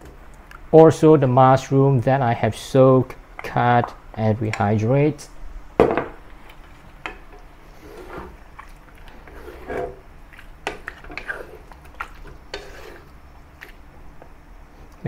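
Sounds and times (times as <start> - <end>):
spatulas stirring food in a wok: 6.4 - 13.9.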